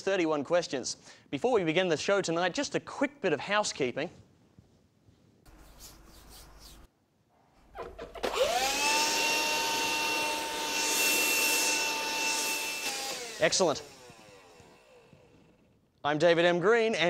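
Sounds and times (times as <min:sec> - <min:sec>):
handheld vacuum motor whine: 0:08.2 - 0:15.8.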